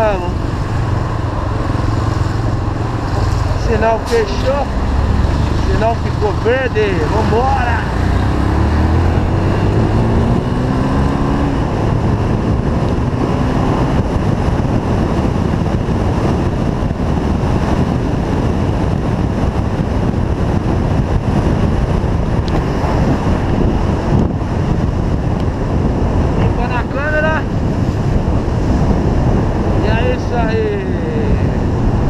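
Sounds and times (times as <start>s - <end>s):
wind rush on microphone: 0.0s - 32.0s.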